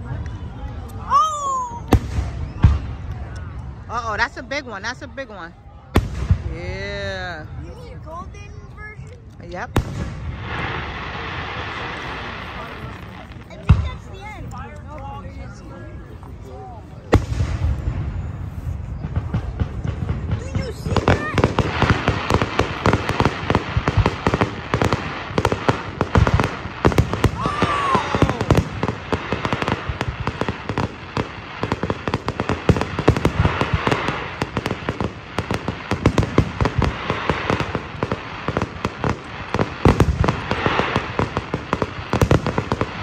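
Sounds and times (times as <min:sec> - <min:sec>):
fireworks crackling and popping: 0:00.0 - 0:43.0
firework bangs: 0:01.2 - 0:03.4, 0:05.8 - 0:07.0, 0:09.6 - 0:14.4, 0:17.0 - 0:43.0.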